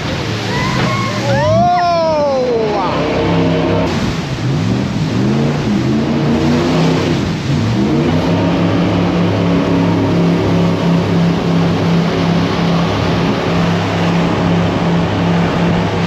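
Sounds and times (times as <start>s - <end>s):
constant rushing noise: 0.0s - 16.0s
jet boat engine revving: 0.0s - 16.0s.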